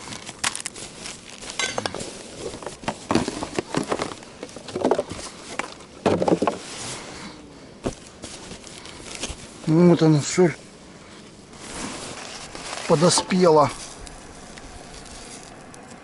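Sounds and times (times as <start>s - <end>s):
bags rustling: 0.0s - 9.9s, 11.4s - 15.7s
items clinking and knocking: 1.5s - 6.6s.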